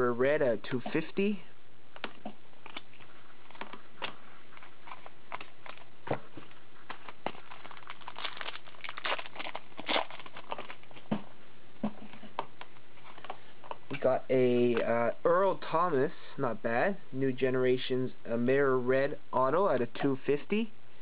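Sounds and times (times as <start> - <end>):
cards being shuffled by hand: 2.0 - 11.2.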